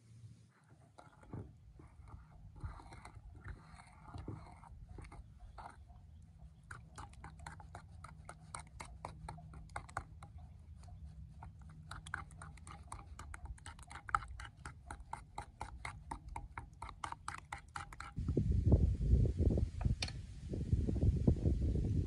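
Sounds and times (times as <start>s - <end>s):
spoon scraping porcelain bowl: 0.6s - 5.9s, 6.6s - 18.2s.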